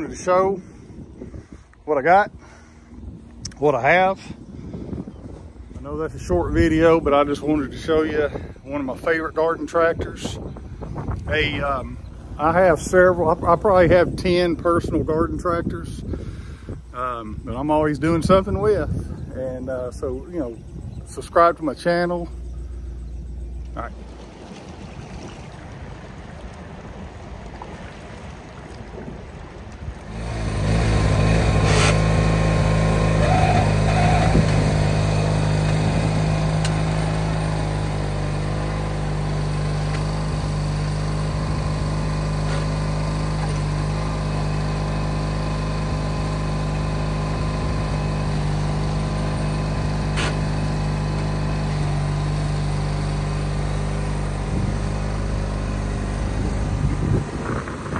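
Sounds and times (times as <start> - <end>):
garden tractor engine under load: 17.0 - 57.9.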